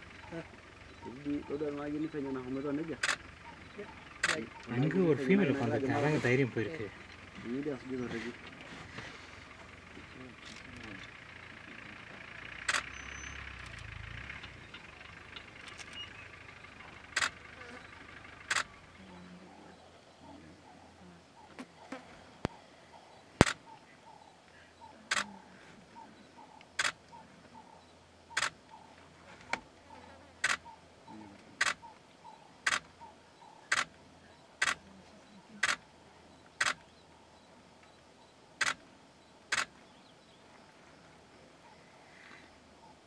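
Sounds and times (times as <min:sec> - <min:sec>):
camera shutter clicks: 0:12.6 - 0:12.9, 0:17.2 - 0:17.4, 0:18.5 - 0:18.7, 0:23.4 - 0:23.6, 0:26.8 - 0:27.0, 0:28.4 - 0:28.6, 0:30.4 - 0:30.6, 0:31.6 - 0:31.8, 0:32.6 - 0:32.9, 0:33.7 - 0:33.9, 0:34.6 - 0:34.8, 0:36.6 - 0:36.9, 0:38.6 - 0:38.8, 0:39.5 - 0:39.8.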